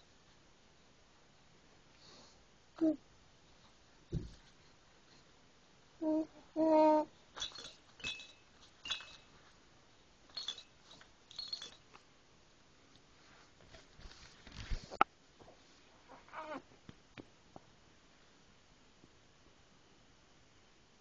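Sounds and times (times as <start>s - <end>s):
infant vocalizing: 6.0s - 7.1s, 16.1s - 16.7s
faint high-pitched clicks and clinks: 7.4s - 9.6s, 10.3s - 12.1s.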